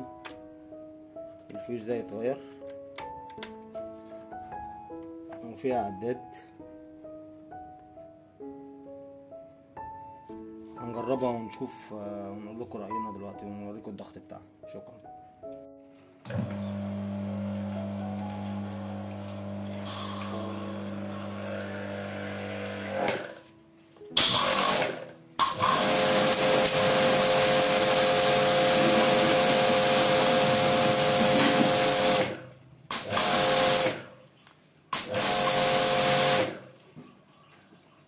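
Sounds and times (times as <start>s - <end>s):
pressure washer motor humming: 16.3s - 23.4s, 24.2s - 34.1s, 35.0s - 36.7s.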